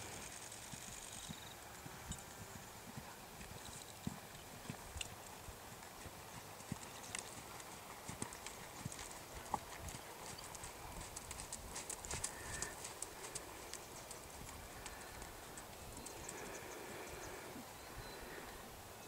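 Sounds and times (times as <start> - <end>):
horse hoofbeats on sand: 0.6 - 15.3.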